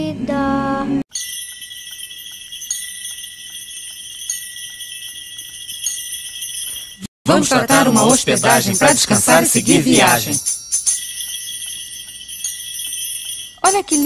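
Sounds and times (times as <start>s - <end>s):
thin held tone: 1.1s - 7.1s, 10.4s - 14.0s
high jingling bells: 1.1s - 14.0s
person singing: 7.3s - 10.4s.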